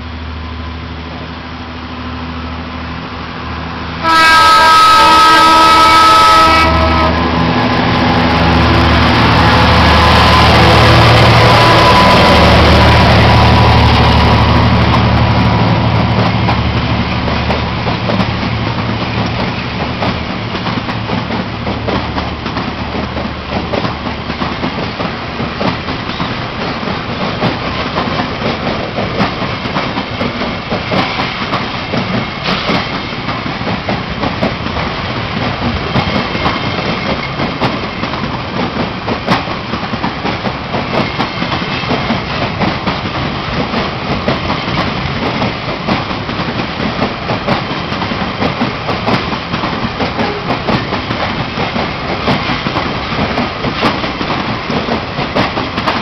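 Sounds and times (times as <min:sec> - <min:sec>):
diesel locomotive engine: 0:00.0 - 0:56.0
train wheels clacking over rail joints: 0:04.1 - 0:56.0.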